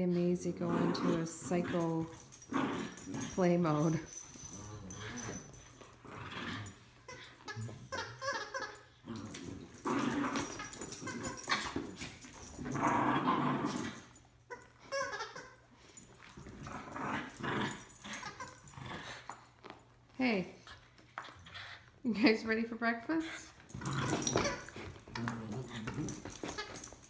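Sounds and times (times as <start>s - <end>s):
small dogs growling: 0.4s - 14.2s, 15.9s - 19.4s, 23.6s - 26.9s.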